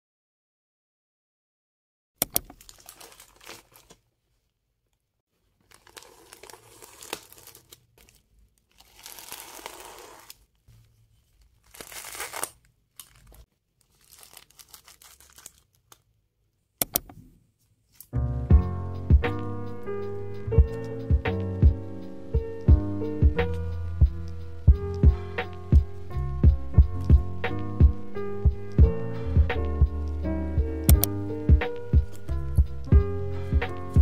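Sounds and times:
plastic bag tearing and crinkling: 0:02.5 - 0:04.0, 0:05.6 - 0:10.5, 0:11.3 - 0:16.0
music: 0:18.2 - 0:34.0.

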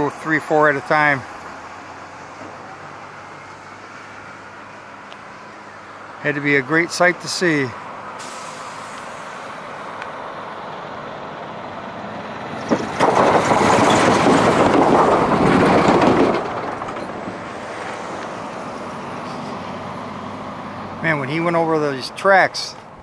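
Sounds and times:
heavy truck rumbling: 0:00.0 - 0:23.0
road traffic noise: 0:00.0 - 0:23.0
truck hitting rails bang: 0:12.5 - 0:18.1.

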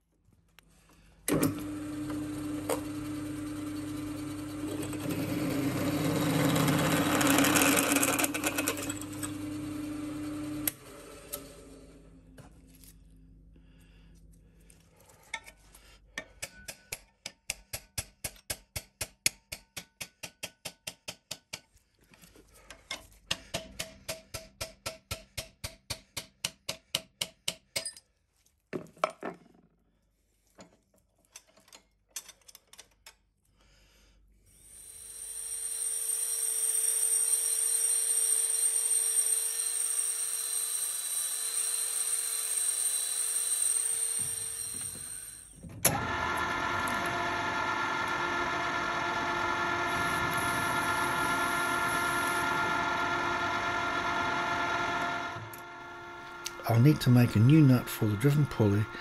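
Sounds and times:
metal lathe turning: 0:01.3 - 0:12.0, 0:35.1 - 0:59.0
belt sander grinding steel: 0:01.6 - 0:12.1, 0:34.6 - 0:59.0.

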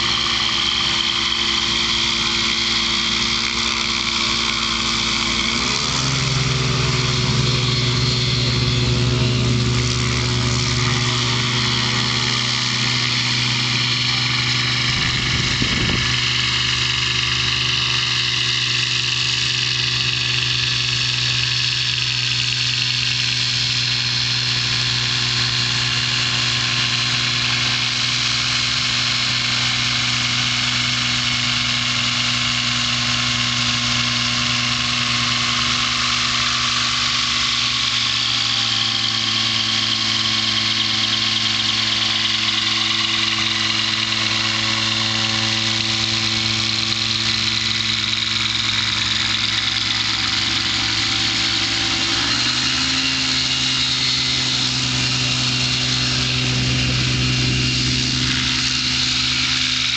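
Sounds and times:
small aircraft engine and propeller: 0:00.0 - 0:59.9.

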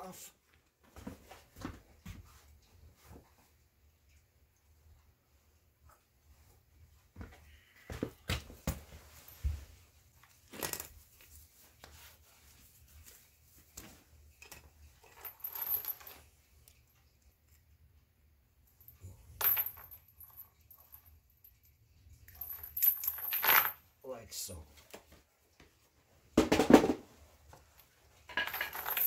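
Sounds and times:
chain links clinking: 0:14.5 - 0:16.3, 0:18.7 - 0:23.9, 0:28.3 - 0:29.0.

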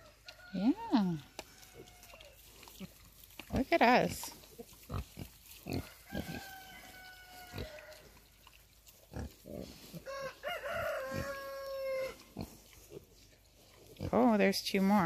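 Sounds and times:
pigs grunting: 0:02.0 - 0:06.6, 0:07.4 - 0:10.0
rooster crowing: 0:05.7 - 0:08.2, 0:10.0 - 0:12.2.

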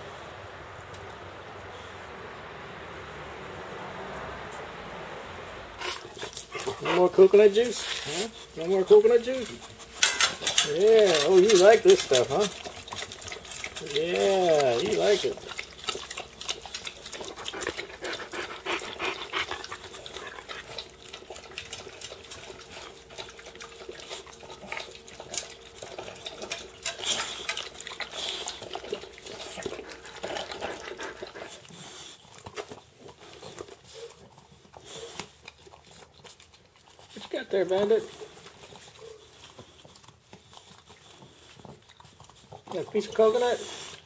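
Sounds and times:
dog lapping from metal bowl: 0:05.8 - 0:44.0.

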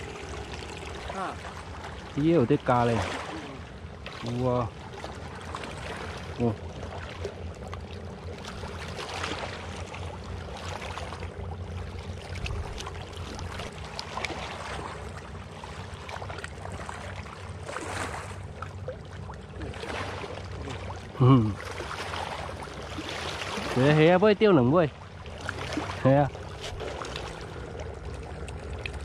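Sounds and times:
low rumble: 0:00.0 - 0:22.7
water lapping and splashing: 0:00.0 - 0:29.0.

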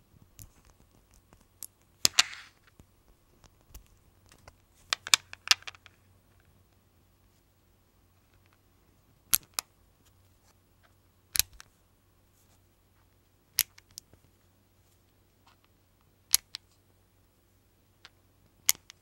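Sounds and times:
magnet balls clicking together: 0:00.4 - 0:06.0, 0:09.3 - 0:09.7, 0:11.3 - 0:11.7, 0:13.6 - 0:14.1, 0:16.3 - 0:16.7, 0:18.0 - 0:19.0.

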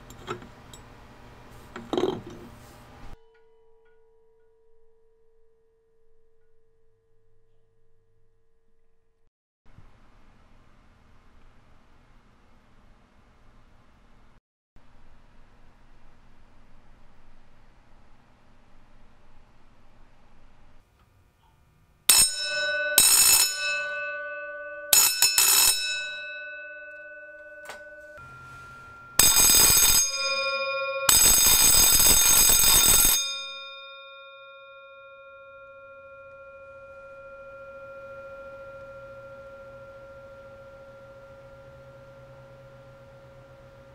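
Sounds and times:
electric fire bell ringing: 0:22.1 - 0:43.9
gong lingering tone: 0:26.4 - 0:31.1, 0:35.2 - 0:43.9.

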